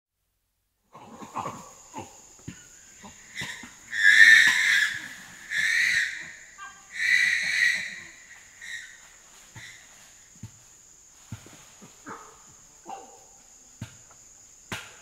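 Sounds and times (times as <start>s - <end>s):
thin insect drone: 0.8s - 15.0s
chimpanzee infant screaming: 3.3s - 9.0s.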